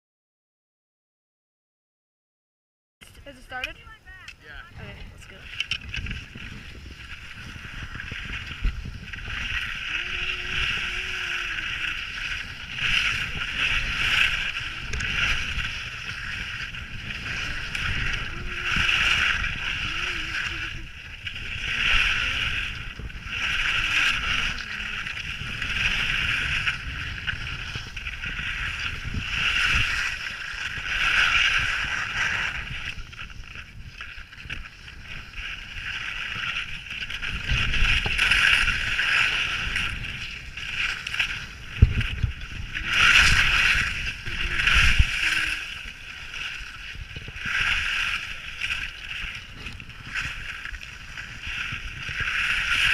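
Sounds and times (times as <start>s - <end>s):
wind rumble on microphone: 3.0s - 52.9s
skis scraping on icy snow: 4.7s - 52.9s.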